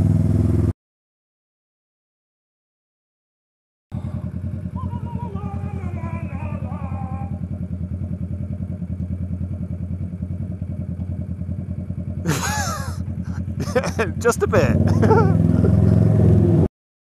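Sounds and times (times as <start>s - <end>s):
motorcycle engine idling: 3.9s - 15.8s.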